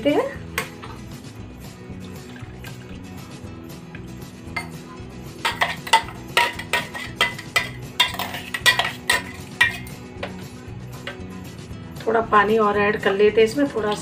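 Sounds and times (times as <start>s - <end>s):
spoon scraping a metal strainer: 5.4s - 10.4s.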